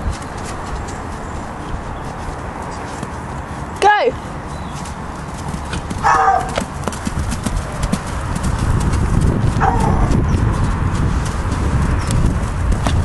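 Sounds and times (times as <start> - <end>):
pony hoofbeats cantering: 3.9 - 13.0.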